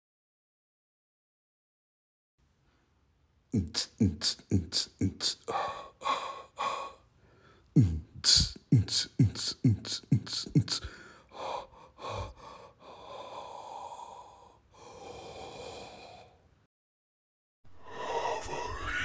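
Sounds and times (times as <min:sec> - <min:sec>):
breathy hiss: 0:03.6 - 0:16.4.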